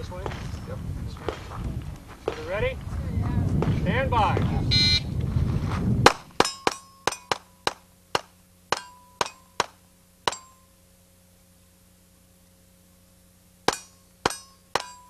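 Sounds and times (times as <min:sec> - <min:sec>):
steel targets clanging: 0:06.4 - 0:07.8, 0:08.7 - 0:10.8, 0:13.7 - 0:15.0.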